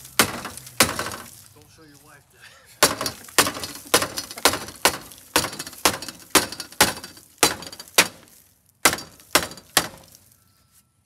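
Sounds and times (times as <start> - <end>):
sharp knocks: 0.0 - 1.3, 2.8 - 10.2.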